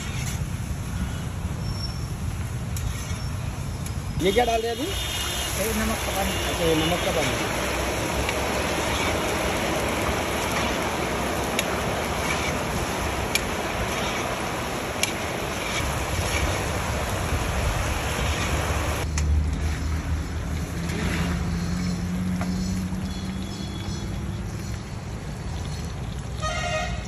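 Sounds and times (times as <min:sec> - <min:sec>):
banana slices sizzling in oil: 0:04.2 - 0:19.0.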